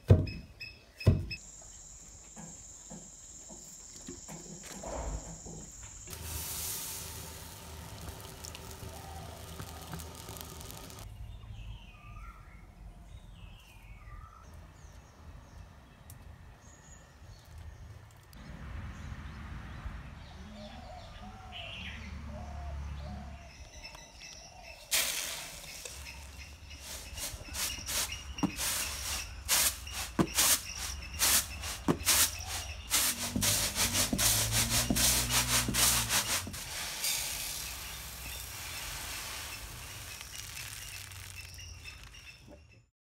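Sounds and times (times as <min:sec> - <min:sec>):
rice grain clattering: 0:06.0 - 0:11.1, 0:24.9 - 0:42.5
rice pouring into bowl: 0:06.1 - 0:11.0, 0:24.9 - 0:42.2
birds chirping: 0:07.0 - 0:42.9.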